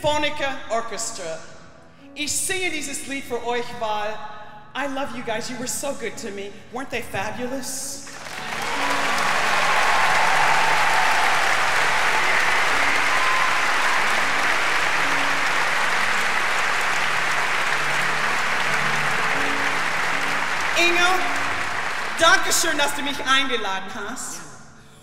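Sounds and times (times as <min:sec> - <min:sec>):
audience applauding: 0:08.1 - 0:23.2.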